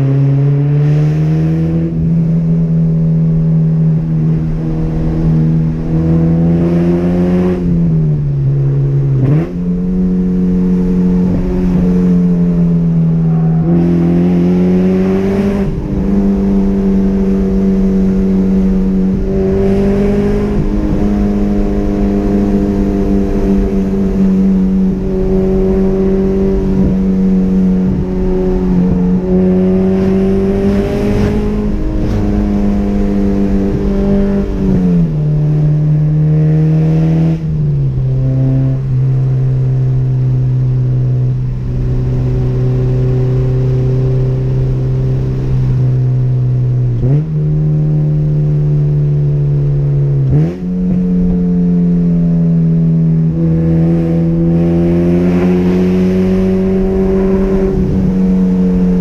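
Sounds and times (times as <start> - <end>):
car engine under load: 0.0 - 59.0.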